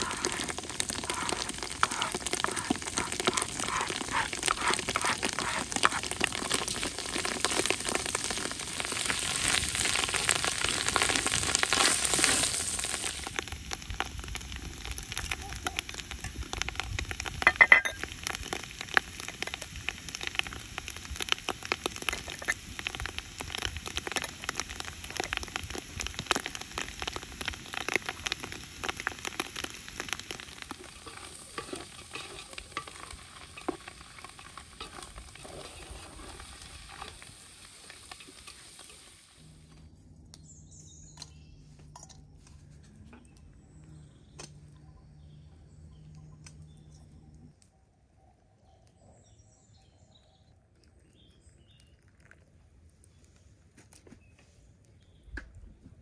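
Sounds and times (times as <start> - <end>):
wooden spoon scraping a pot: 0.0 - 7.7, 29.5 - 39.1
mushrooms sizzling in a pot: 0.0 - 41.5.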